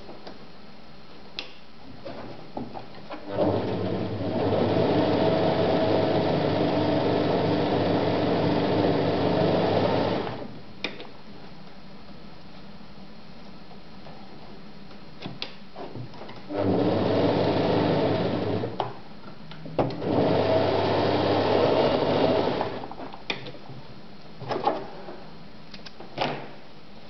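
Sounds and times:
sewing machine stitching: 0:03.2 - 0:10.4, 0:16.5 - 0:18.8, 0:19.8 - 0:22.9.

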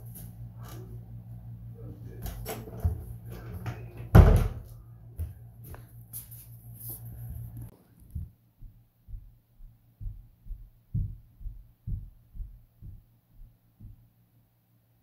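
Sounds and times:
steady low hum: 0:00.0 - 0:15.0
loud door thump: 0:04.1 - 0:04.6.

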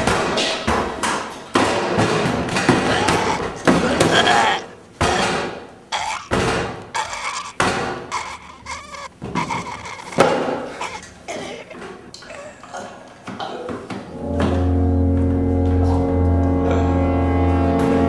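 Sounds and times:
banging on metal partitions: 0:00.0 - 0:04.4.

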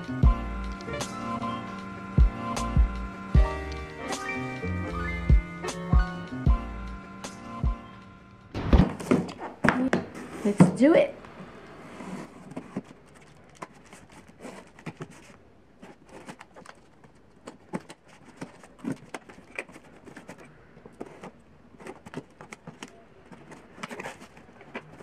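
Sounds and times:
cardboard being handled: 0:08.6 - 0:10.8, 0:11.8 - 0:25.0.

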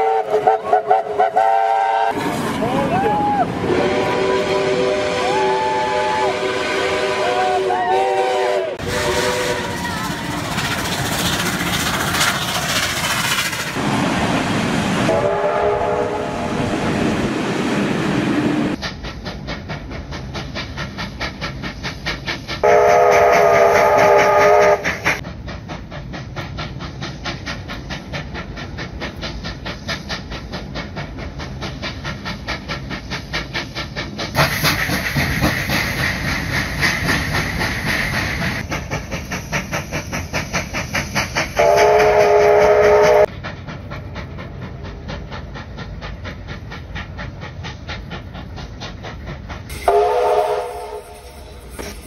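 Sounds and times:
train horn: 0:00.0 - 0:02.2, 0:03.6 - 0:10.2, 0:15.1 - 0:16.5, 0:22.6 - 0:24.8, 0:41.6 - 0:43.3, 0:49.7 - 0:51.4
locomotive whistle blast: 0:00.0 - 0:10.4, 0:15.1 - 0:16.3, 0:22.6 - 0:24.9, 0:41.6 - 0:43.3, 0:49.7 - 0:51.7
steam locomotive chuffing: 0:00.0 - 0:52.0.

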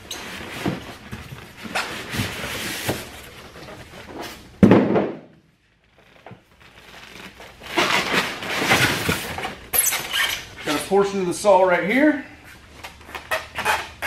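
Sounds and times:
cardboard rustling and scraping: 0:00.2 - 0:04.6, 0:05.9 - 0:10.5
loud thump on box: 0:04.6 - 0:05.3.

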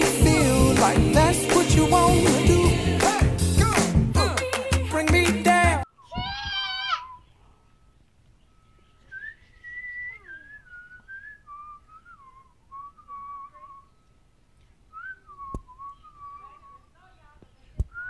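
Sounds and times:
person whistling: 0:09.0 - 0:14.0, 0:14.9 - 0:16.8.

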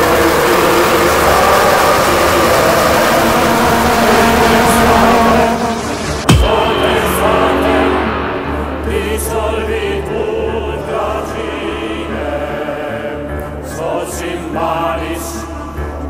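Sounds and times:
low drone: 0:00.0 - 0:12.2
choir singing held chords: 0:00.0 - 0:16.0.

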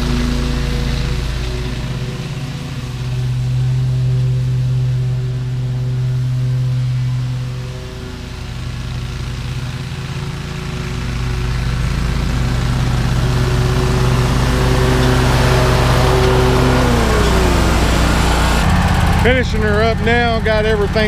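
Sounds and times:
mower engine running: 0:00.0 - 0:21.0.

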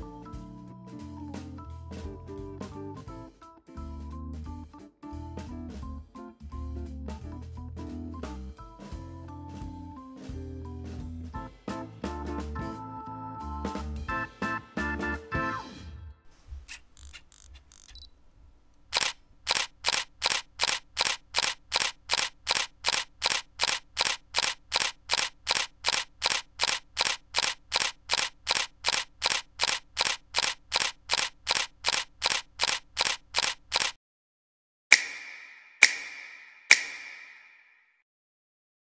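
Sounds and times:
sharp clicks: 0:16.7 - 0:18.1, 0:18.7 - 0:34.0, 0:34.9 - 0:37.7.

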